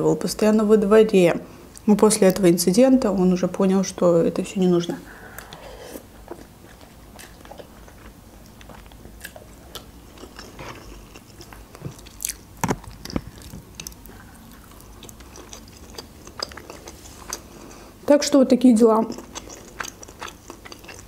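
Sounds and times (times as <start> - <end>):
person chewing food: 5.1 - 18.0, 19.1 - 21.0.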